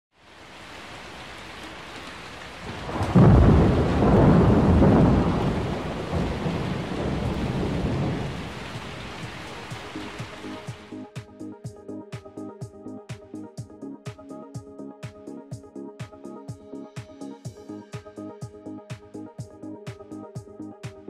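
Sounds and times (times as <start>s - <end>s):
steady rain: 0.1s - 10.9s
thunder clap rumbling: 2.6s - 10.7s.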